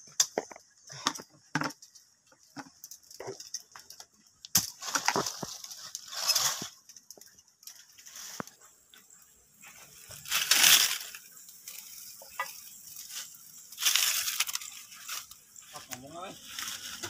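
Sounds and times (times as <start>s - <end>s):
leaves rustling: 4.6s - 17.0s
dry twigs snapping: 10.2s - 17.0s.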